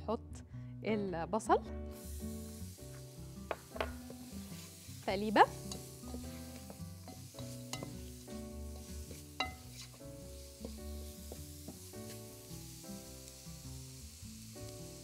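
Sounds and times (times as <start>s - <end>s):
soft background music: 0.0s - 15.0s
onion sizzling in a pot: 1.9s - 15.0s
spatula knocking against pot: 3.5s - 4.2s.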